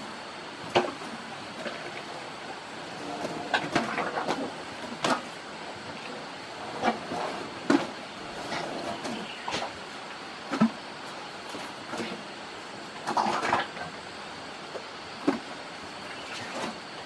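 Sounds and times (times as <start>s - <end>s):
steady hiss: 0.0s - 17.0s
elephants crunching food: 13.0s - 13.9s.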